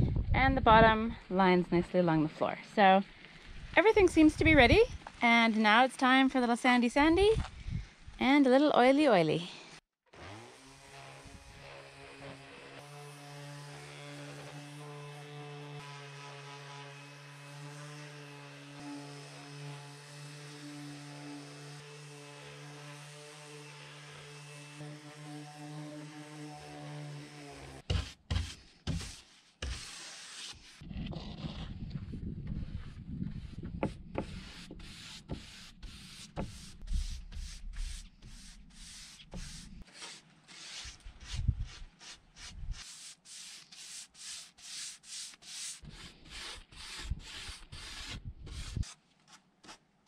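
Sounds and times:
orbital sander humming on wood: 0:10.2 - 0:27.8
brush sweeping dust: 0:27.9 - 0:30.8, 0:34.2 - 0:49.0.

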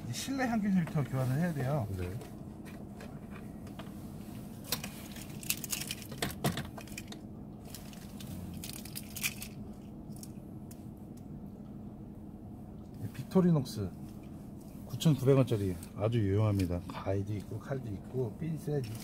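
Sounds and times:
faint low hum: 0:00.0 - 0:19.0.

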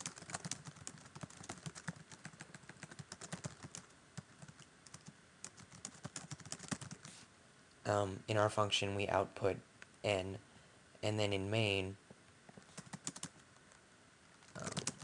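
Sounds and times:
typing on a keyboard: 0:00.0 - 0:07.1, 0:12.8 - 0:13.4, 0:14.4 - 0:15.0.

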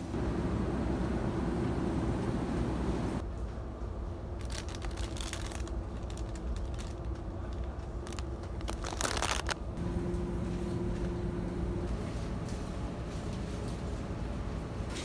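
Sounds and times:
shopping cart wheels rumbling: 0:04.4 - 0:15.0.

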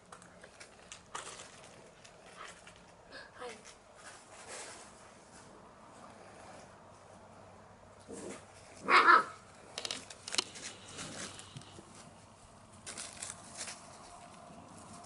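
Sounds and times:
puppy barking: 0:08.8 - 0:09.4.

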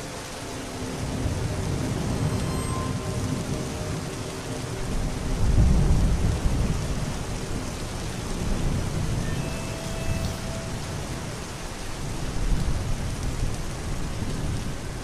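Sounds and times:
steady rain: 0:00.0 - 0:15.0
thunder rumbling: 0:01.0 - 0:14.6.

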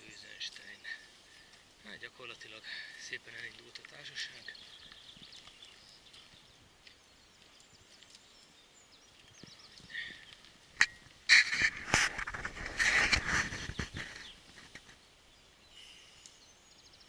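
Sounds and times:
faint birdsong chirps: 0:00.0 - 0:17.0
camera handling rustling and knocking: 0:10.8 - 0:14.9.

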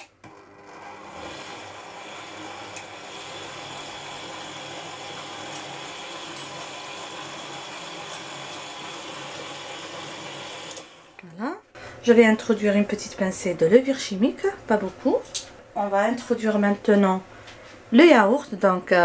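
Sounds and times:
stand mixer motor humming: 0:00.2 - 0:11.2.

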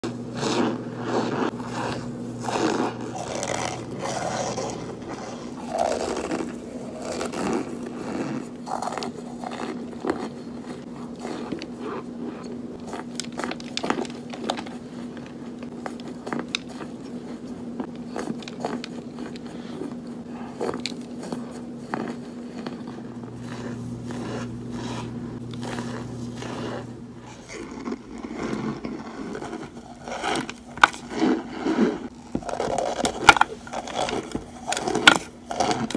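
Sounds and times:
crunchy biting and chewing: 0:00.0 - 0:35.9
steady low hum: 0:00.0 - 0:35.9.

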